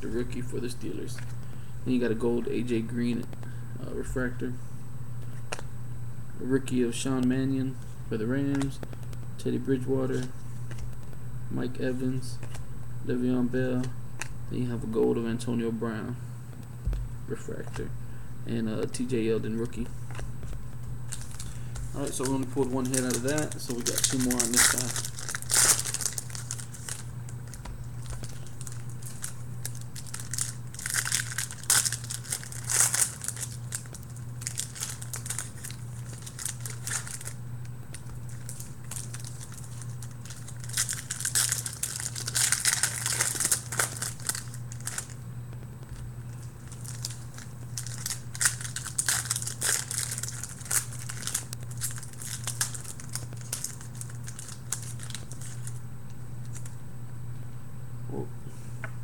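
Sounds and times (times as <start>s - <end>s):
cards rustling: 7.8s - 11.2s, 11.9s - 12.7s, 18.8s - 45.2s, 45.9s - 55.8s
foil wrapper crinkling: 19.6s - 45.2s, 45.8s - 55.8s, 56.4s - 56.8s.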